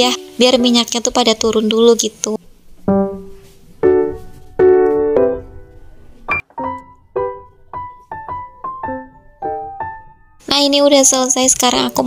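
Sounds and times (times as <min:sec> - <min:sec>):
piano music: 0:02.5 - 0:10.7.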